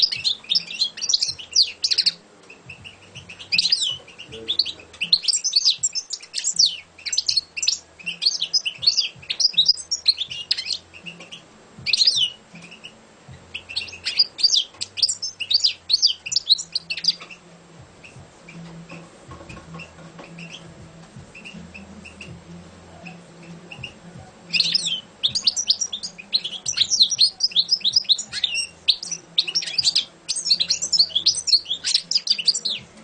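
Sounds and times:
goldfinch singing: 0.0s - 33.0s.

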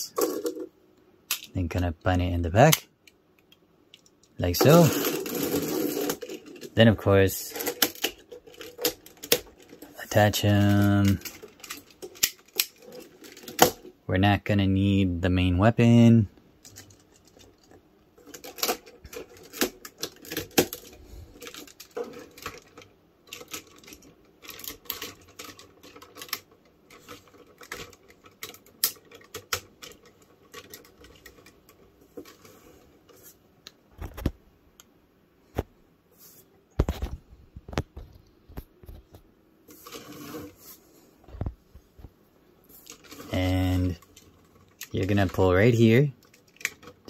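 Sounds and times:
plastic toy pieces clicking: 7.4s - 13.9s, 16.6s - 31.8s, 46.2s - 47.0s.

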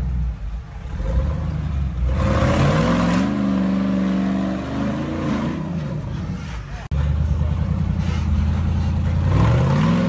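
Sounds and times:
engine revving hard: 0.8s - 5.8s, 9.2s - 10.0s.

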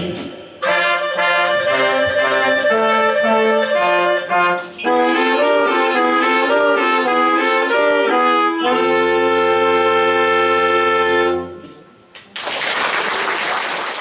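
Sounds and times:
brass band playing: 0.6s - 11.7s
audience applause: 12.3s - 14.0s.

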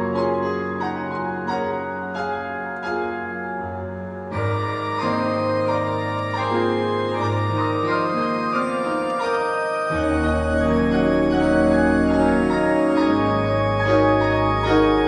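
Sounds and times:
organ chords: 0.0s - 15.0s
piano notes: 0.0s - 15.0s
deep organ pedal note: 2.1s - 15.0s.

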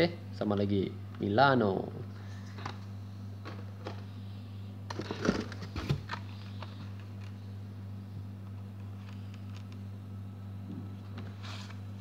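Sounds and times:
steady low hum: 0.0s - 12.0s
cardboard and plastic rustling: 4.9s - 7.4s.

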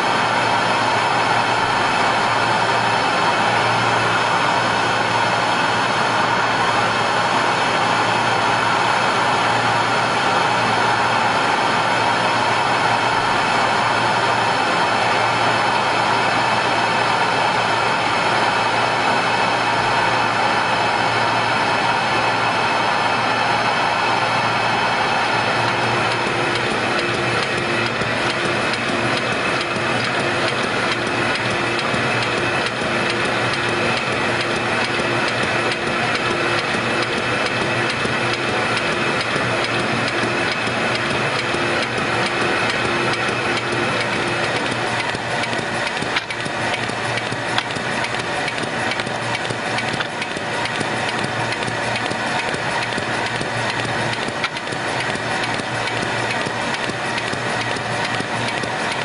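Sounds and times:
mail-processing machine whirring: 0.0s - 59.0s
sharp clicks: 25.7s - 59.0s.

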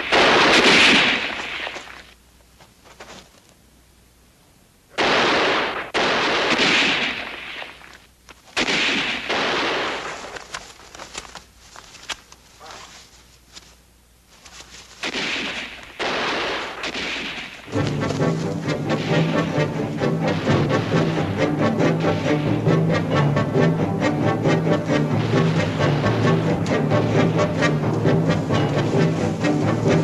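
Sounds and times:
gunfire bursts: 0.0s - 2.1s, 5.0s - 7.9s, 8.6s - 10.4s, 15.0s - 23.1s.

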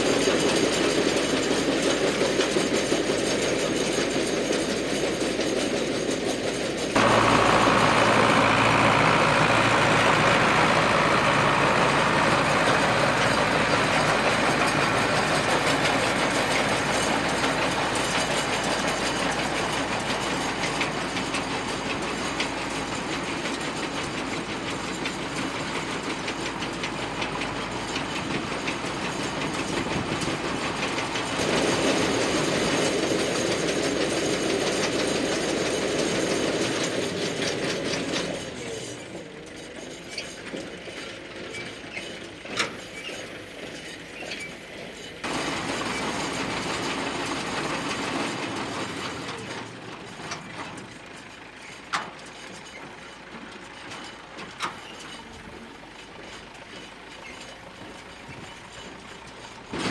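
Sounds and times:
baler clatter and ticking: 0.0s - 59.9s
tractor diesel engine running: 0.0s - 59.9s.

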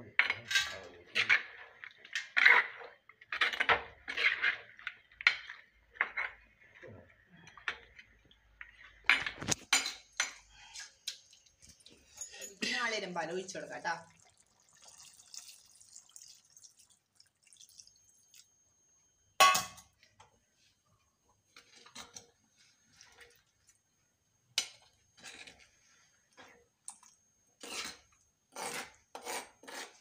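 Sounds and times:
spoon scraping clay pot: 0.1s - 10.5s, 27.6s - 30.0s
liquid pouring into pot: 14.0s - 19.0s.

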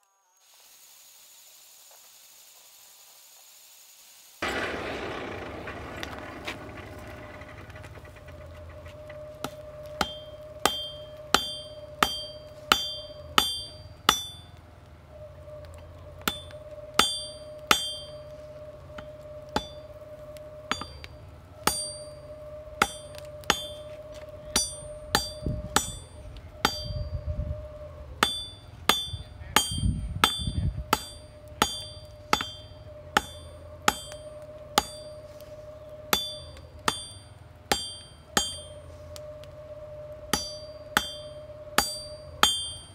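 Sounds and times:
steady hum: 4.4s - 42.9s
hammer striking metal on anvil: 9.4s - 14.6s, 16.2s - 18.2s, 19.5s - 19.8s, 20.7s - 22.2s, 22.8s - 23.8s, 24.5s - 27.0s, 28.2s - 35.1s, 36.1s - 38.7s, 40.3s - 42.9s.

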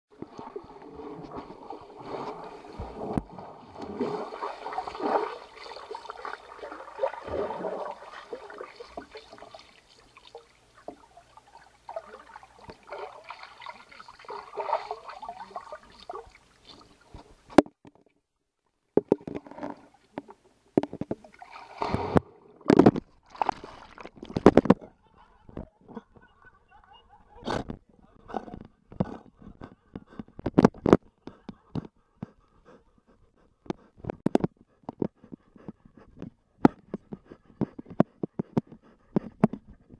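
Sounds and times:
underwater gurgling and bubbling: 0.2s - 9.5s.

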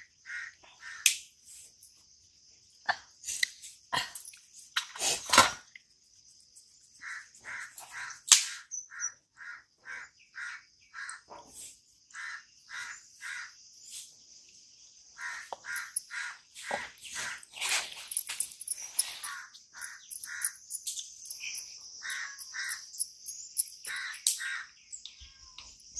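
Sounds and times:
crow cawing: 0.2s - 1.0s, 7.0s - 8.2s, 8.9s - 11.2s, 12.1s - 13.6s, 15.2s - 16.4s, 19.3s - 20.6s, 22.0s - 22.8s, 23.9s - 24.8s
high insect drone: 11.4s - 25.9s.

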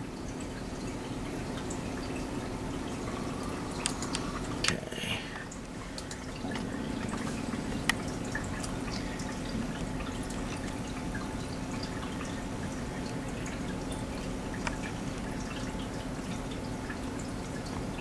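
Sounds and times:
low room hum: 0.0s - 18.0s
faint ticks: 3.8s - 4.5s.

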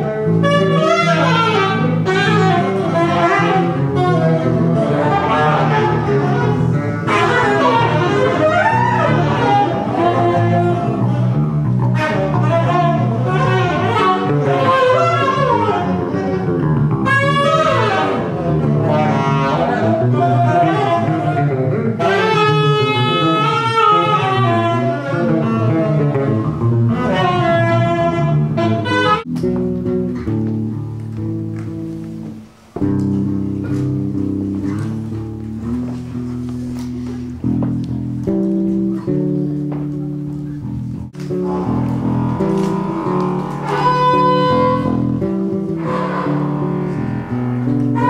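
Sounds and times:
higher held notes: 0.0s - 48.0s
horn sliding notes: 0.4s - 11.1s, 41.3s - 48.0s
bass low stepping notes: 24.4s - 48.0s.

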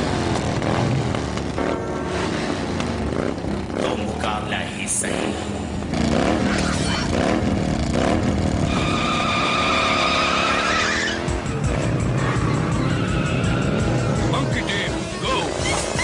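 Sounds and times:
background music: 9.3s - 16.0s.

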